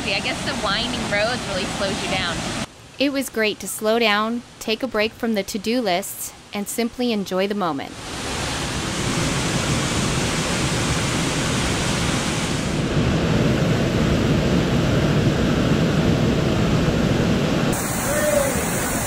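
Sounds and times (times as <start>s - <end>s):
waterfall rushing: 17.7s - 19.0s.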